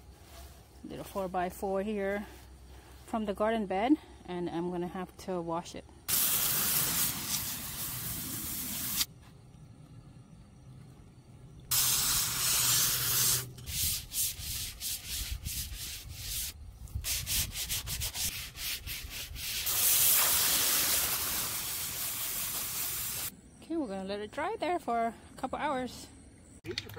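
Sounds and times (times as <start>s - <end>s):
hose nozzle spraying water: 6.1s - 9.1s, 11.7s - 14.5s, 19.4s - 23.3s.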